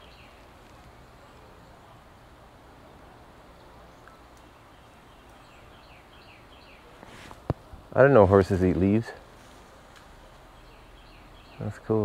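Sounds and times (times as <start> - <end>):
steady low hiss: 0.0 - 12.0.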